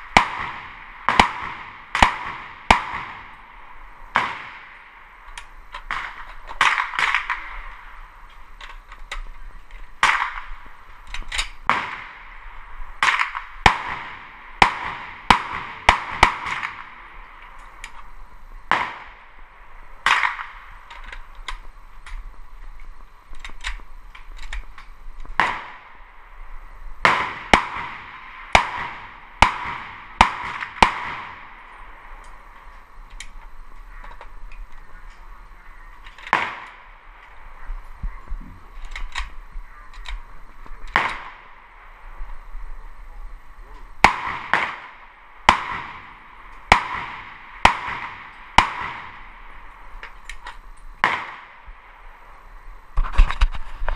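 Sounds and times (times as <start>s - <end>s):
rifle shots with echo: 0.0s - 5.1s, 5.8s - 8.0s, 10.0s - 10.8s, 11.6s - 17.3s, 18.7s - 20.8s, 25.4s - 26.0s, 27.0s - 32.1s, 35.7s - 37.6s, 40.9s - 42.0s, 44.0s - 49.9s, 51.0s - 52.2s.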